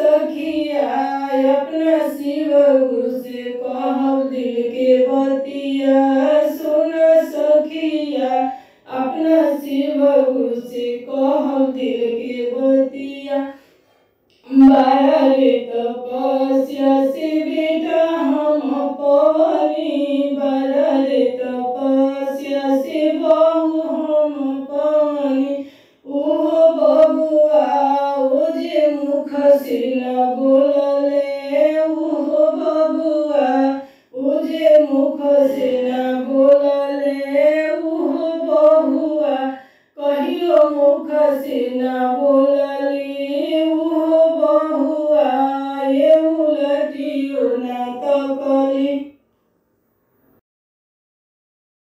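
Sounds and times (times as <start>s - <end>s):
woman singing devotional folk song: 0.0s - 49.2s.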